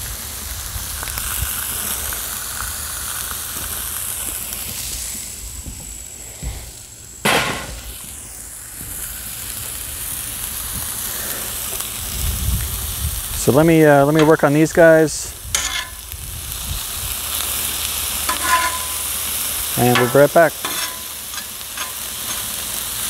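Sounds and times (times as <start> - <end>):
meat sizzling on a griddle: 0.0 - 23.0
sharp crack: 7.2 - 8.0.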